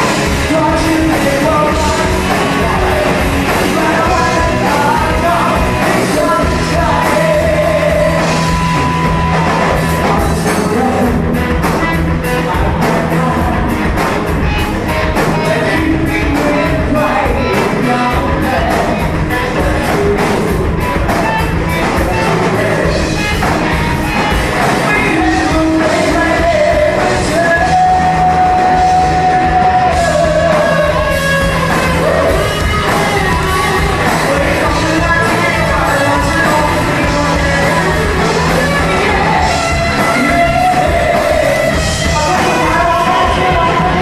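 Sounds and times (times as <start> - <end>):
woman singing: 0.0 - 8.6, 24.8 - 44.0
live rock band playing: 0.0 - 44.0.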